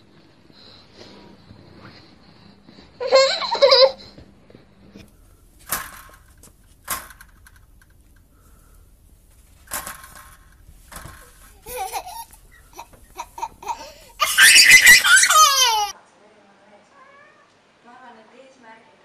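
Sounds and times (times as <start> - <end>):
baby squealing and laughing: 3.0 - 4.1, 11.5 - 15.9.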